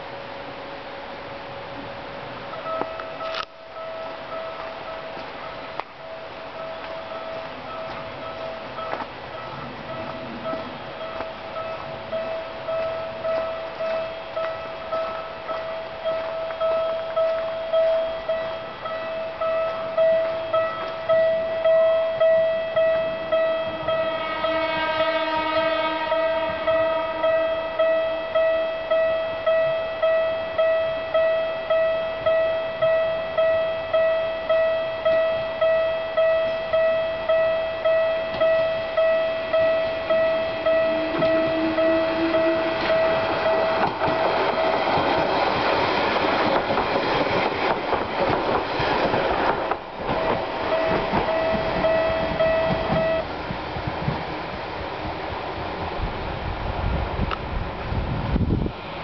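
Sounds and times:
level crossing bell clanging: 0:02.5 - 0:24.2, 0:26.6 - 0:45.3, 0:50.1 - 0:53.3
train wheels clattering on rails: 0:02.5 - 0:56.2
train horn: 0:23.2 - 0:28.3, 0:38.3 - 0:45.1, 0:50.2 - 0:53.3.

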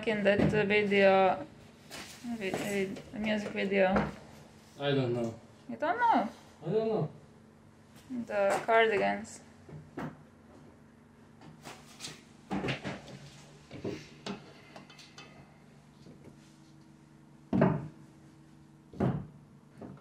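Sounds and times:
objects knocking and clunking: 0:00.0 - 0:00.8, 0:12.5 - 0:16.4, 0:17.5 - 0:18.0, 0:18.9 - 0:20.0
faint steady hum: 0:00.0 - 0:20.0.

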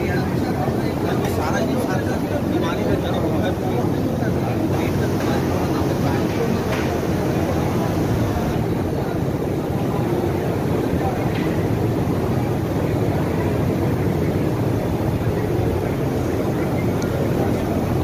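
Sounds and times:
indistinct crowd voices: 0:00.0 - 0:18.0.

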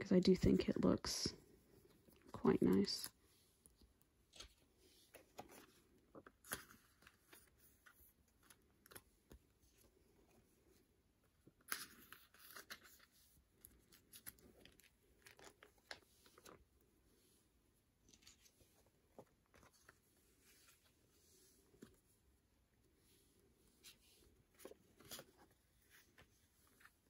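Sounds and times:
plastic sleeves crinkling: 0:11.4 - 0:17.1.

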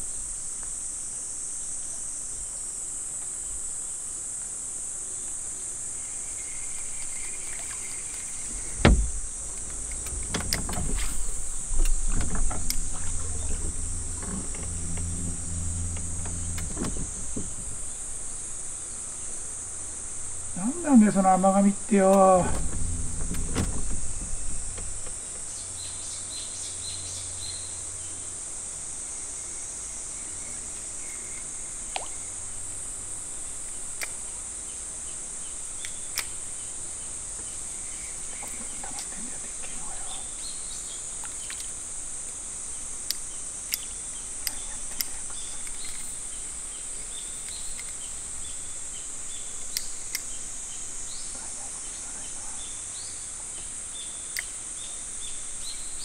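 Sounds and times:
insects droning: 0:00.0 - 0:56.0
sharp clicks: 0:08.5 - 0:17.7, 0:35.8 - 0:36.4.

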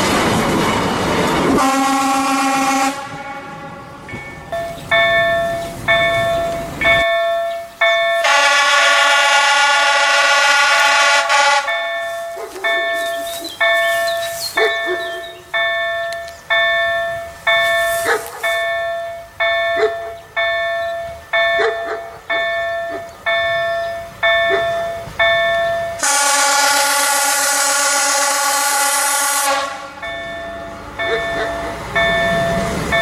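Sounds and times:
level-crossing warning bell: 0:00.0 - 0:33.0
train horn: 0:01.5 - 0:04.1, 0:08.2 - 0:13.4, 0:26.0 - 0:30.2.

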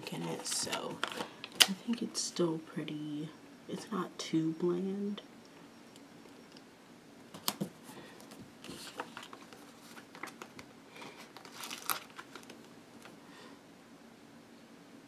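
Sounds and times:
sticker sheet rustling: 0:08.6 - 0:13.1.

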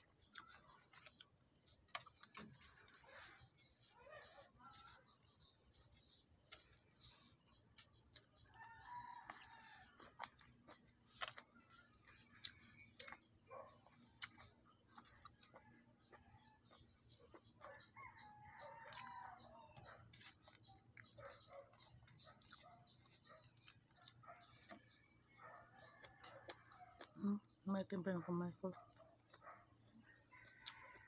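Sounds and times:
eating clicks and smacks: 0:00.0 - 0:03.8, 0:06.2 - 0:25.0, 0:25.7 - 0:27.5.

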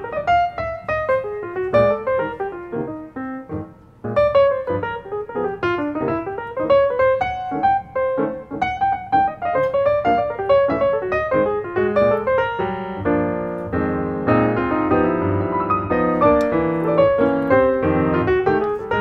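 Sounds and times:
piano music: 0:00.0 - 0:19.0.

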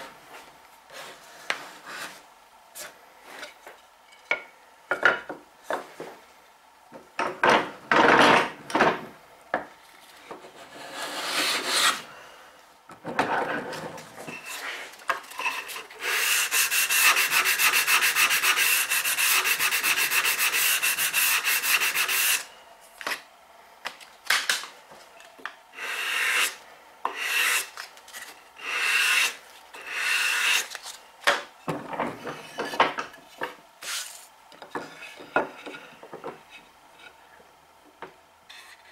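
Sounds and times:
hand plane shaving wood: 0:16.0 - 0:22.4, 0:27.1 - 0:27.7
sanding block rubbing wood: 0:16.0 - 0:22.5, 0:25.8 - 0:27.7, 0:28.6 - 0:30.7.

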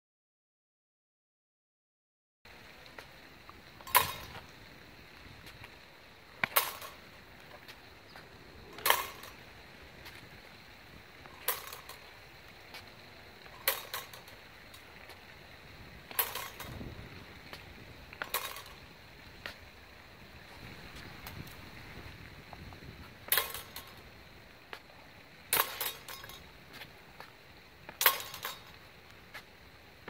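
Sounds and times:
rapier blades clashing: 0:03.8 - 0:04.4, 0:08.7 - 0:09.4, 0:11.2 - 0:12.1, 0:13.4 - 0:14.4, 0:16.1 - 0:16.8, 0:25.5 - 0:26.4, 0:28.0 - 0:28.8.

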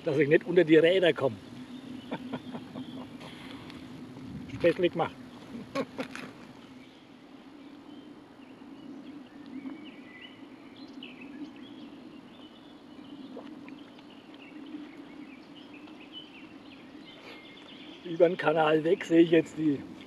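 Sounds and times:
birds chirping faintly: 0:00.0 - 0:20.0
steady low hum: 0:00.0 - 0:20.0.

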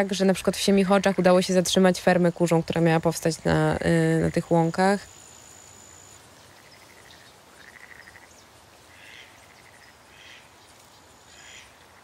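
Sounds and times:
faint woodland ambience: 0:00.0 - 0:12.0
small animal calling: 0:06.4 - 0:10.5, 0:11.3 - 0:12.0.

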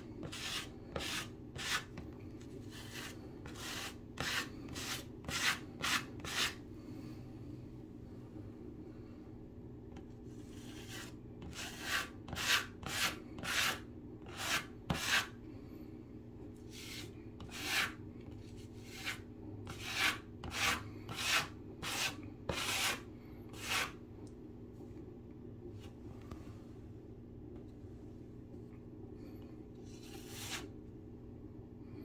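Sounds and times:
stick scraping spackle on drywall: 0:00.2 - 0:06.6, 0:10.3 - 0:15.3, 0:16.7 - 0:18.0, 0:18.6 - 0:24.0, 0:29.8 - 0:30.7.

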